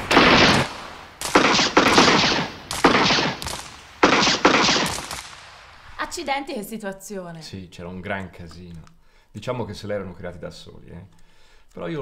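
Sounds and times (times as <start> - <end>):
gunshots with echo: 0.0 - 5.8.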